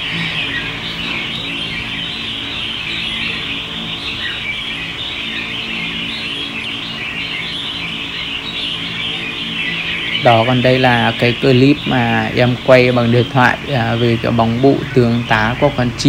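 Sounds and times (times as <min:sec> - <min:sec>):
birds chirping and singing: 0:00.0 - 0:16.0.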